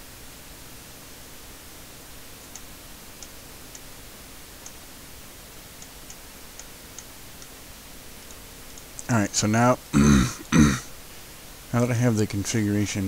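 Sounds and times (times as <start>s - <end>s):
background hiss: 0.0s - 13.0s
computer mouse clicking: 2.4s - 3.9s, 5.8s - 7.5s.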